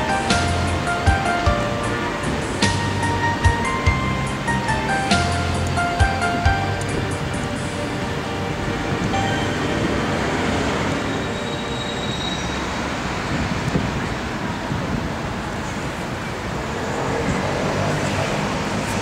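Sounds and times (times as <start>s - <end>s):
city road traffic rumble: 0.0s - 19.0s
wind buffeting microphone: 12.9s - 19.0s.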